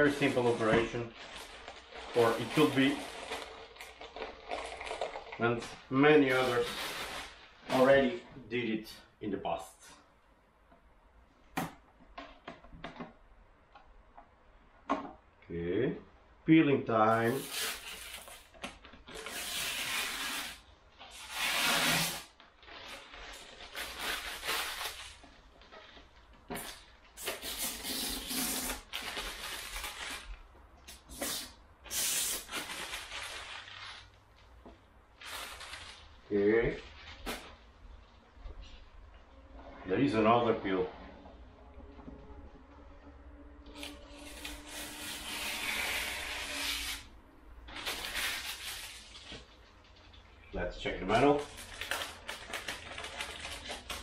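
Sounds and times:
plastic film peeling: 0:00.0 - 0:07.9, 0:17.3 - 0:38.9, 0:43.7 - 0:50.5, 0:51.1 - 0:54.0.

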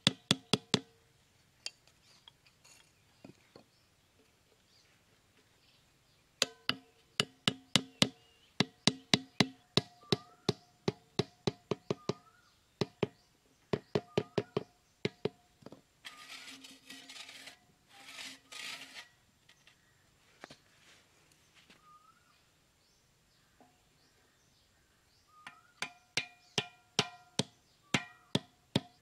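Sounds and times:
hatchet hammering stakes: 0:00.0 - 0:00.9, 0:06.4 - 0:13.2, 0:25.5 - 0:29.0
scraping and rustling: 0:16.0 - 0:21.7.

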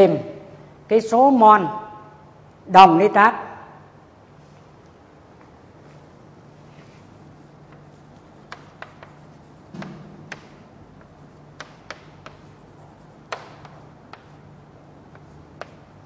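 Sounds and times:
chalk tapping on blackboard: 0:07.4 - 0:16.0.

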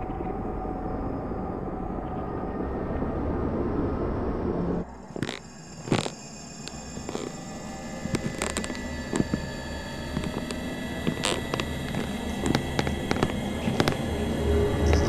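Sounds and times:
low steady drone: 0:00.0 - 0:15.0
sharp clicks and creaks: 0:05.2 - 0:15.0.

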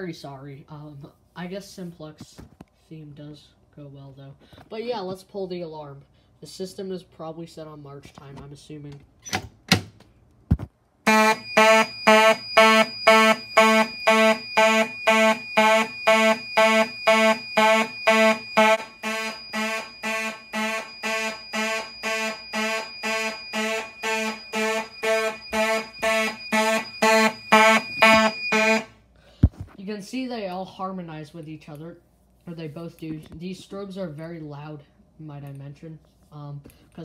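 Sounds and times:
fire alarm horns buzzing: 0:11.0 - 0:29.0
steady high whine: 0:11.1 - 0:29.0.

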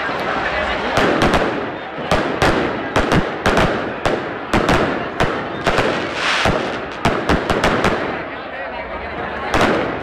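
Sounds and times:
firework crackle: 0:00.4 - 0:08.3.

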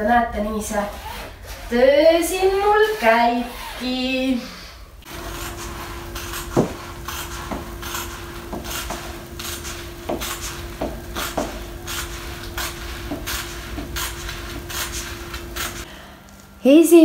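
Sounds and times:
faint steady hum: 0:04.4 - 0:17.0.

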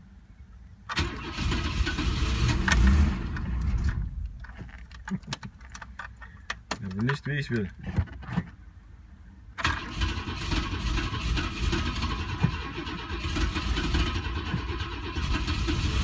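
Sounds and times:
engine cranking on starter: 0:00.9 - 0:04.0, 0:09.6 - 0:16.0.

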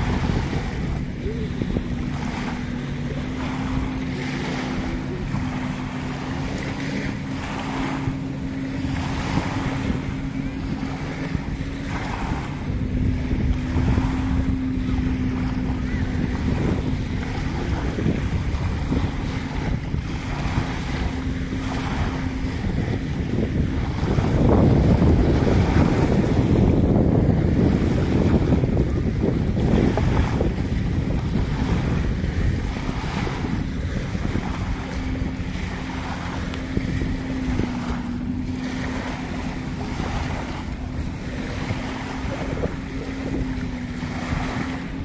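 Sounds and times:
small waves washing on sand: 0:00.0 - 0:45.0
steady low hum: 0:00.0 - 0:45.0
wind buffeting microphone: 0:00.0 - 0:45.0.

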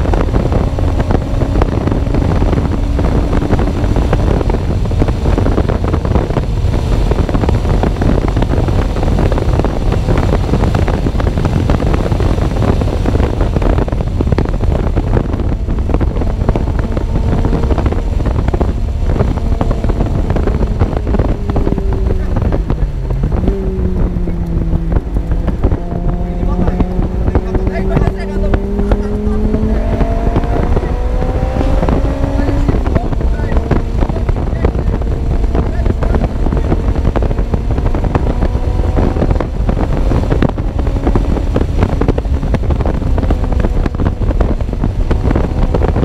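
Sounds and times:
faint car engine: 0:00.0 - 0:46.0
wind buffeting microphone: 0:00.0 - 0:46.0.

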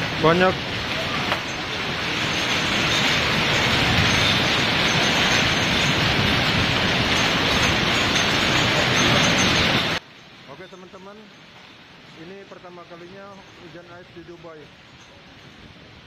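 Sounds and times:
hail and rain on paving stones: 0:00.0 - 0:10.0.

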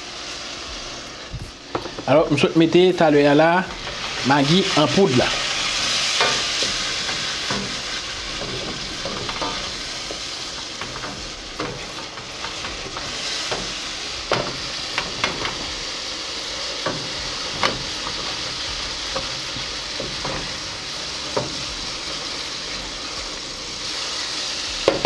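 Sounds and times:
sauce sizzling in a pan: 0:00.0 - 0:25.0
wooden spoon scraping a pan: 0:03.6 - 0:15.8.

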